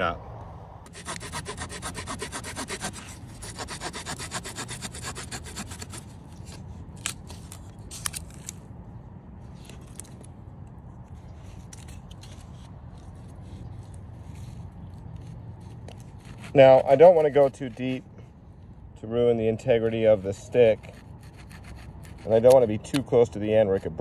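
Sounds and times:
saw cutting dry branch: 0.9s - 8.6s, 11.6s - 18.0s, 19.9s - 24.0s.

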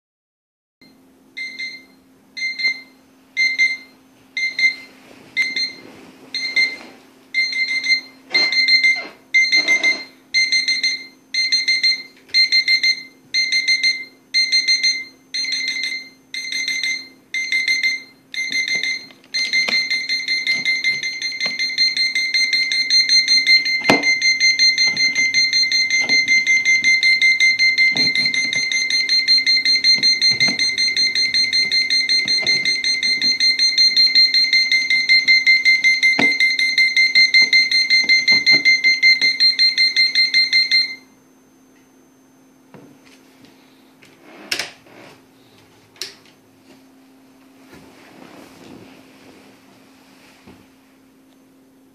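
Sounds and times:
alarm clock beeping: 1.4s - 5.8s, 6.4s - 6.8s, 7.4s - 41.1s.

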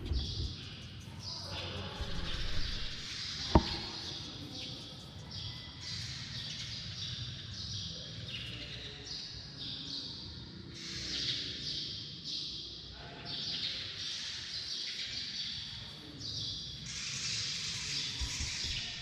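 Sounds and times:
small birds chirping: 0.0s - 19.0s
sharp knock: 3.4s - 4.2s.

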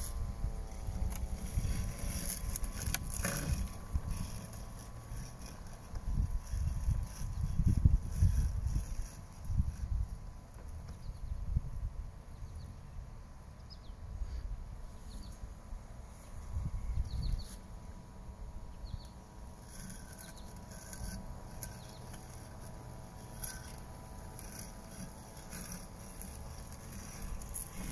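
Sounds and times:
robotic lawn mower humming: 0.0s - 13.6s, 14.7s - 27.9s
bird chirps: 16.8s - 17.6s.

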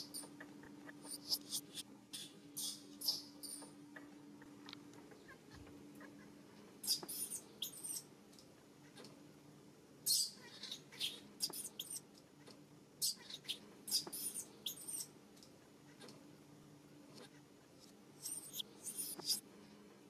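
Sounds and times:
baby monkey squealing: 0.0s - 3.7s, 6.8s - 8.1s, 10.1s - 12.0s, 13.0s - 15.1s, 18.2s - 19.4s.

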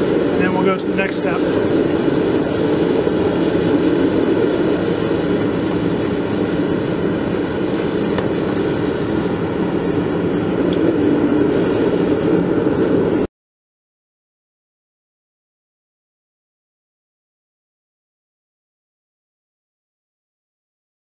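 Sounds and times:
gas burner rushing: 0.0s - 13.3s.

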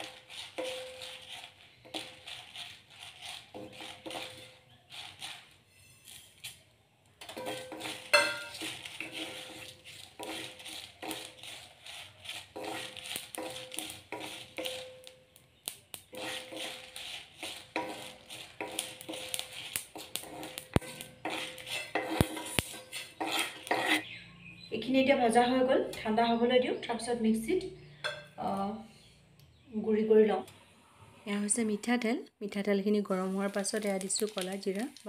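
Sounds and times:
spatula scraping spices in wok: 0.0s - 25.5s, 33.0s - 35.0s.

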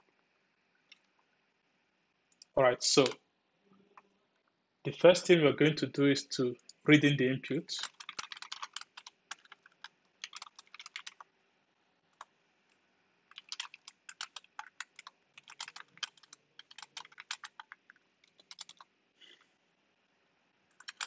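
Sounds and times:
typing on computer keyboard: 7.8s - 11.3s, 13.3s - 18.9s, 20.7s - 21.0s.

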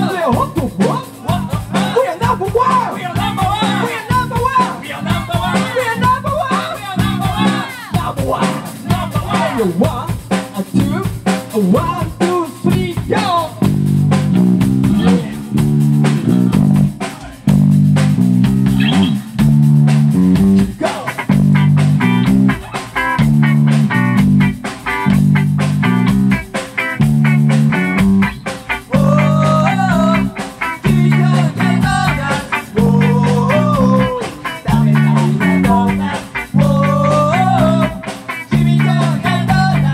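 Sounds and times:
person singing: 0.0s - 13.5s, 14.9s - 15.5s, 28.8s - 39.9s
rock band playing: 0.0s - 39.9s.

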